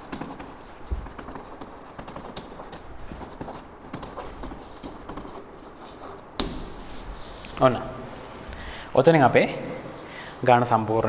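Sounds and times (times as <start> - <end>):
chalk scratching on blackboard: 0.0 - 7.6.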